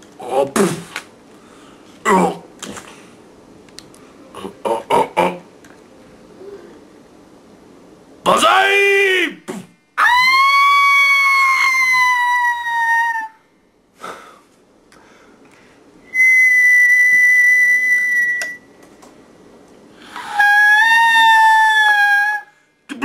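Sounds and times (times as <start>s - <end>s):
comic whistle sound effects: 16.1s - 18.6s.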